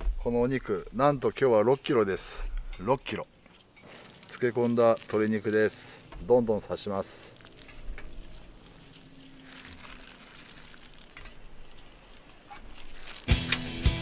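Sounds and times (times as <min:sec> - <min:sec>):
wet squelching and rustling: 0:03.0 - 0:13.7
music with drums: 0:13.3 - 0:14.0.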